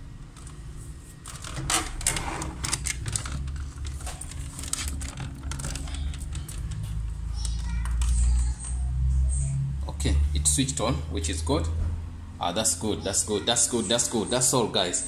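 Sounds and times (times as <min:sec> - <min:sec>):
cables and plastic clicking: 0:00.3 - 0:00.6, 0:01.2 - 0:08.8.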